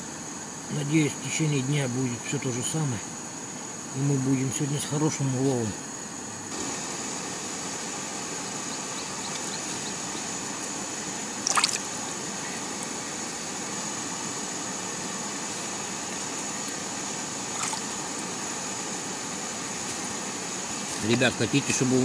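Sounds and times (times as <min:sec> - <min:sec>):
steady hiss: 0:00.0 - 0:22.0
water splash: 0:11.4 - 0:11.8, 0:17.5 - 0:17.9.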